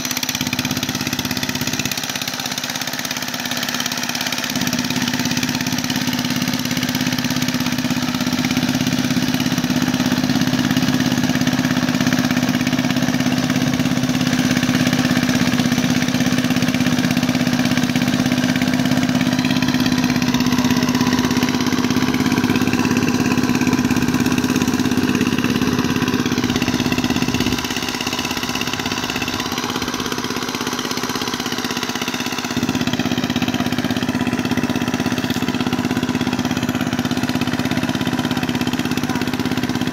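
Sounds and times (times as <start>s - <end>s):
tiller engine running: 0.0s - 39.9s.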